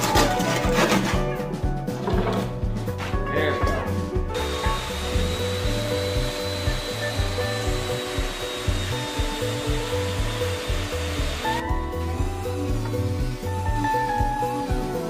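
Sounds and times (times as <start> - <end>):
background music with bass beat: 0.0 - 15.0
belt sander sanding wood: 4.4 - 15.0.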